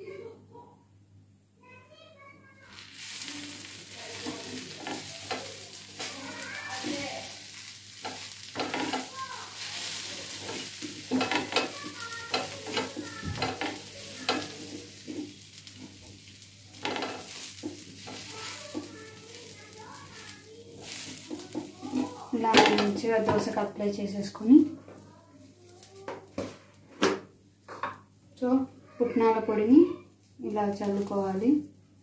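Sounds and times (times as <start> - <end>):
food sizzling on a hot pan: 2.6 - 26.6, 30.4 - 31.8
spatula scraping and tapping pan: 3.6 - 23.6.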